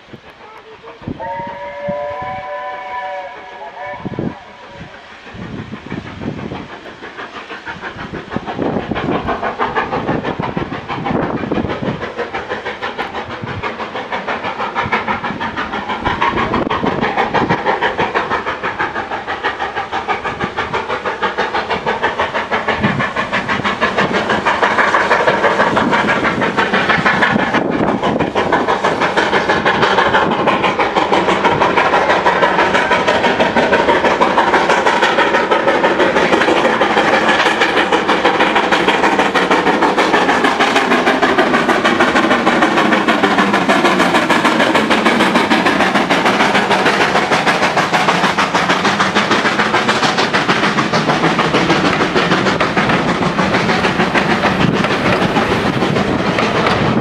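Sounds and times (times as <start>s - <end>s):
steam locomotive chuffing: 0.0s - 57.0s
steam whistle: 1.2s - 4.6s.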